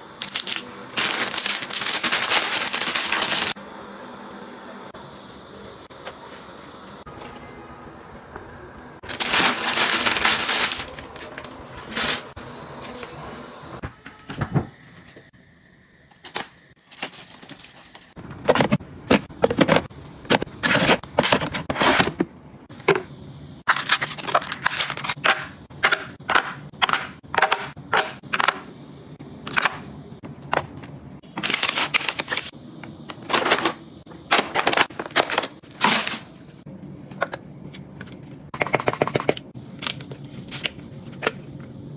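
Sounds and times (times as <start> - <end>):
plastic bag crinkling: 0.2 - 3.6, 9.0 - 12.3.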